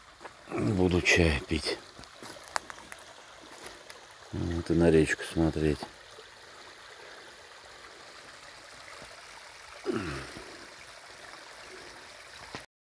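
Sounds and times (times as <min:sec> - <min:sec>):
river flowing: 0:00.0 - 0:12.6
person low vocal sound: 0:09.8 - 0:10.7.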